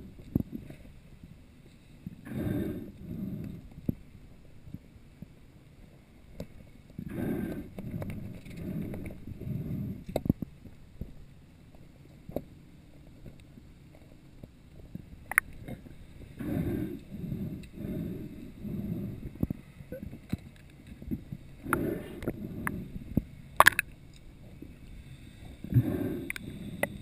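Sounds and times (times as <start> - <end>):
underwater water swishing: 6.5 - 10.2, 14.9 - 27.0.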